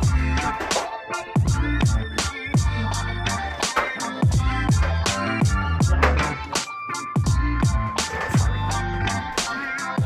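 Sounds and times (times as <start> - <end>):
deep kick drums: 0.0 - 0.4, 1.4 - 2.8, 4.2 - 6.1, 7.2 - 8.7.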